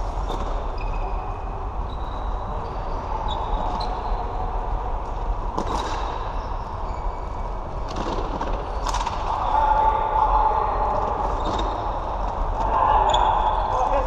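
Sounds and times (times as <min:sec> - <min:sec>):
shoes squeaking on floor: 0:11.4 - 0:11.9.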